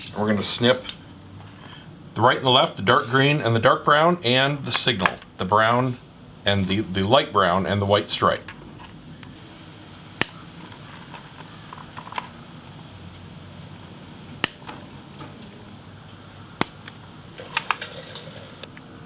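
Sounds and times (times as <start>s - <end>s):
side cutters snipping wires: 10.2s - 10.8s, 14.4s - 14.8s.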